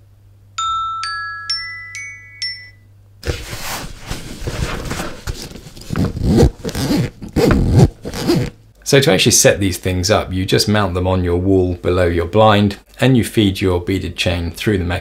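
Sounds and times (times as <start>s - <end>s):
phone ringtone marimba notes: 0.6s - 2.9s
fabric bag unzipped: 3.2s - 8.6s.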